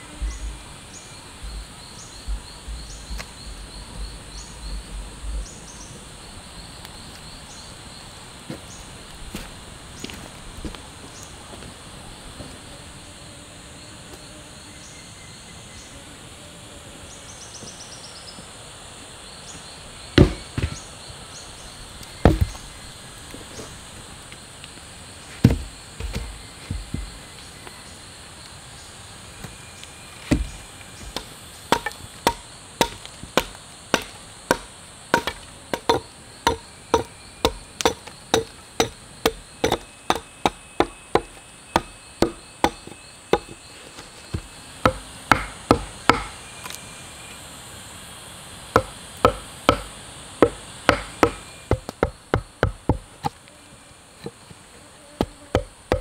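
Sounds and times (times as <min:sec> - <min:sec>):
insects buzzing: 0:00.0 - 0:56.0
tool chopping wood: 0:20.2 - 0:20.8, 0:22.2 - 0:22.6, 0:25.4 - 0:27.1, 0:30.3 - 0:43.6, 0:44.3 - 0:46.4, 0:48.8 - 0:53.4, 0:55.2 - 0:56.0.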